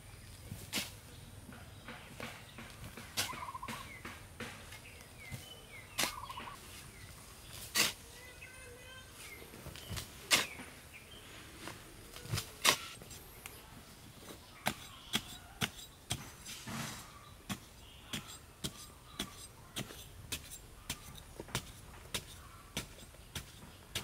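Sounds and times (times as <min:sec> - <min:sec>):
hand tool knocking wood: 0:01.5 - 0:04.8.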